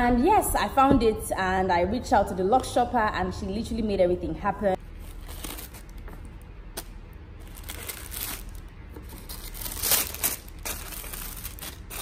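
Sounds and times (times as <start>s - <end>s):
tissue paper crinkling and rustling: 7.4s - 12.0s.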